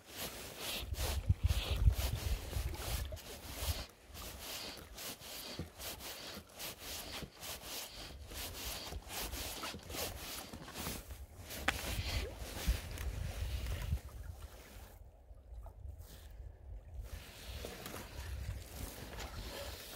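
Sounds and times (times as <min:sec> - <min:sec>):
close rustling and rubbing: 0:00.0 - 0:14.0
wind buffeting microphone: 0:00.9 - 0:03.7.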